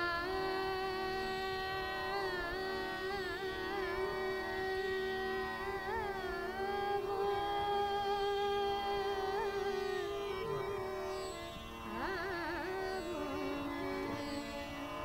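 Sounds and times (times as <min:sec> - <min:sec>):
woman singing classical style: 0:00.0 - 0:10.5, 0:11.9 - 0:14.3
harmonium accompaniment: 0:00.0 - 0:15.0.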